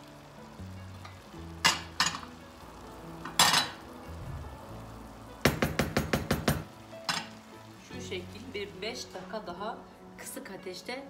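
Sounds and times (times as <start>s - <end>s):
wooden spoon knocking on pan: 5.4s - 7.3s.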